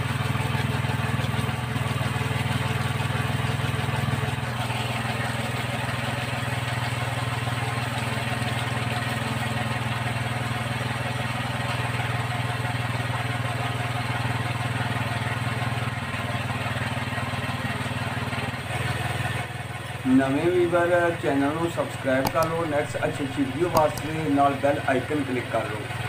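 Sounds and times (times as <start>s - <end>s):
motorcycle engine running: 0.0s - 12.0s, 22.0s - 25.0s.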